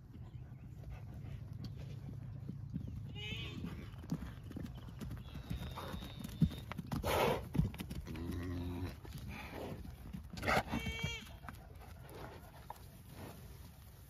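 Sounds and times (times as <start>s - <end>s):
hoof steps and knocks: 0.0s - 13.9s.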